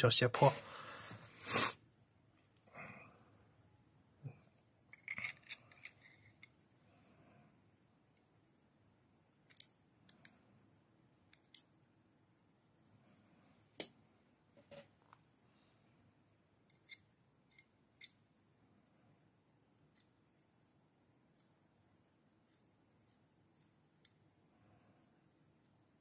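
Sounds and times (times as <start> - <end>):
metallic clicks of small steel parts: 9.5 - 10.4.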